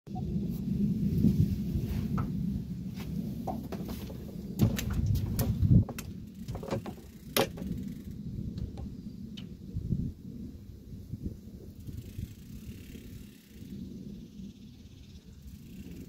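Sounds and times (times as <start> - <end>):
wind rumble on microphone: 0.1 - 16.0
fishing rod and reel knocking: 4.6 - 8.9.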